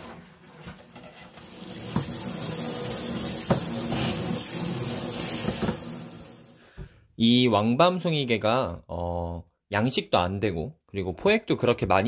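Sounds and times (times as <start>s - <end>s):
tap water running into sink: 1.2s - 6.9s.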